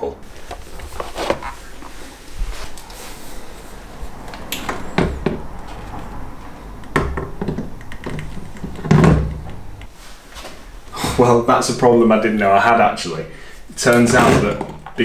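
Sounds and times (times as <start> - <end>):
dull knocks and clunks on metal: 6.9 - 9.8.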